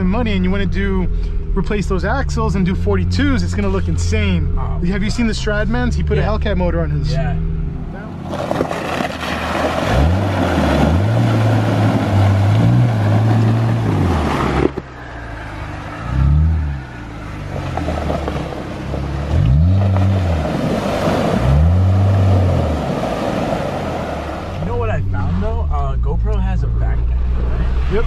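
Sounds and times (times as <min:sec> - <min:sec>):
engine revving: 0:00.0 - 0:28.0
tyres rushing through water: 0:08.1 - 0:25.5.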